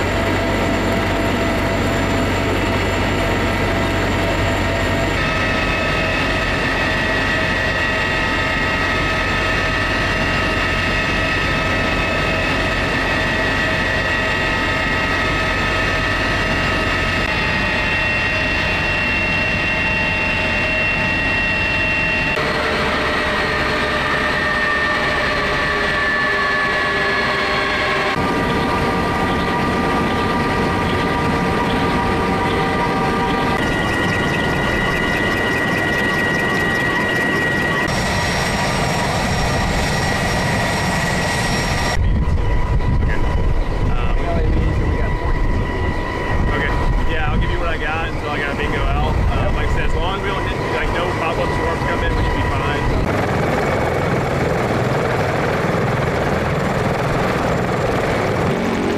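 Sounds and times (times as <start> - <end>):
helicopter rumble: 0.0 - 58.9
high turbine whines: 0.0 - 58.9.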